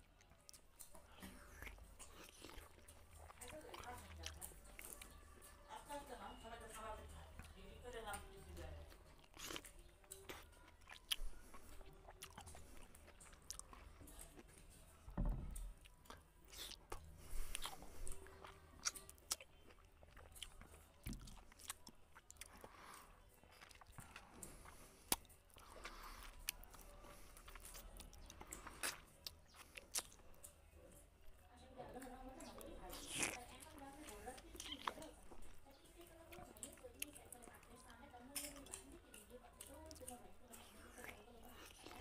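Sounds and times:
wet chewing: 0.0s - 42.0s
lip smacks: 9.2s - 14.6s, 18.8s - 30.6s, 32.5s - 35.5s.

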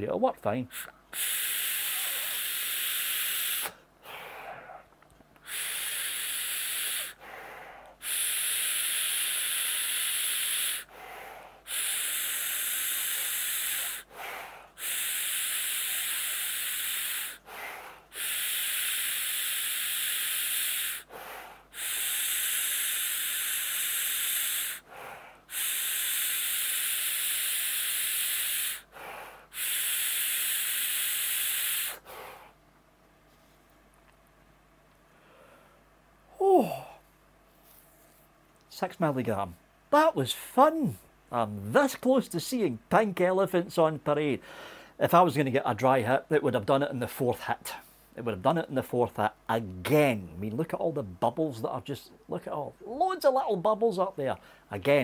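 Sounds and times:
air hissing through vape: 0.7s - 4.8s, 5.4s - 32.5s.

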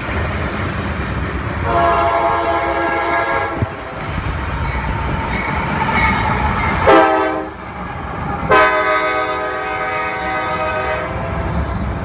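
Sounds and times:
low rumble of diesel locomotives: 0.0s - 12.0s
locomotive air horn blasts: 1.6s - 3.7s, 6.8s - 7.6s, 8.5s - 11.3s.

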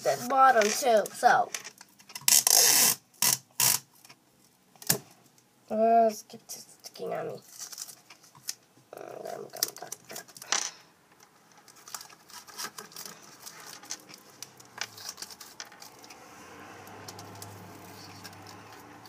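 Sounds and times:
tape and cardboard tube handled: 11.5s - 16.2s, 17.1s - 19.0s.

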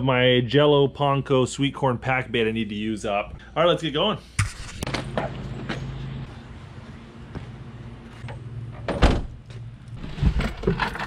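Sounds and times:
car hatch slamming shut: 8.9s - 9.4s.

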